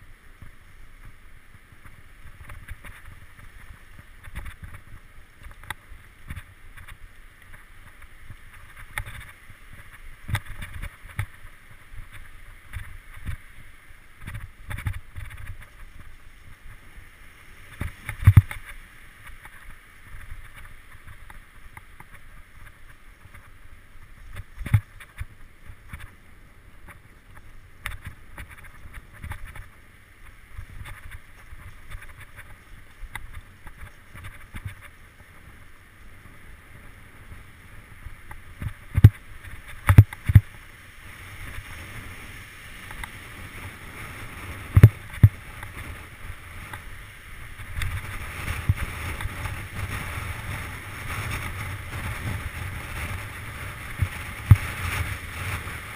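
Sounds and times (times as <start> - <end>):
bike rattling: 0.3 - 35.8, 38.1 - 55.9
bike hitting roots and rocks: 17.7 - 22.2.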